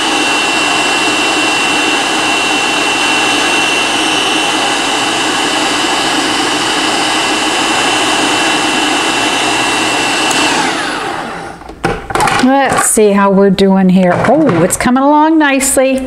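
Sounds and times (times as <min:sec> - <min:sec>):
motor winding down: 0:00.0 - 0:11.7
food processor whirring: 0:00.0 - 0:13.0.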